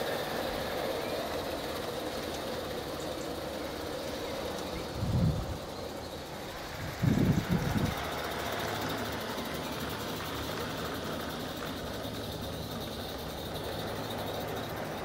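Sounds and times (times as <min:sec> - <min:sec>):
small steam locomotive running: 0:00.0 - 0:15.0.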